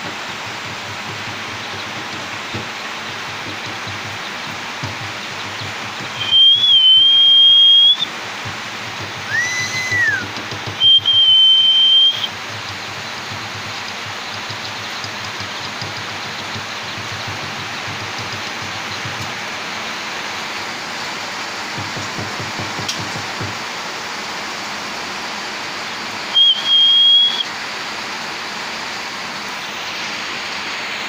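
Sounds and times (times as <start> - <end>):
steady hiss: 0.0 - 31.0
rising and falling whistle: 6.0 - 8.1, 9.2 - 12.3, 26.3 - 27.5
high whistled notes: 6.0 - 8.2, 9.2 - 12.3, 26.3 - 27.5.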